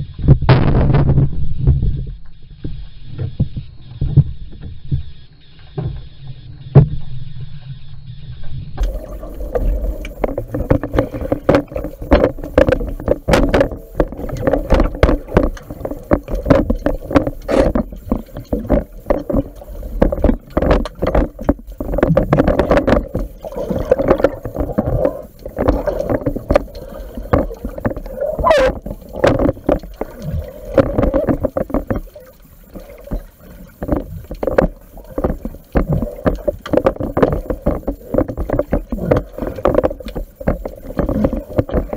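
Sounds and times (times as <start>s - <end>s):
muffled underwater water rumble: 0.0s - 41.9s
knocks and clicks: 8.8s - 41.9s.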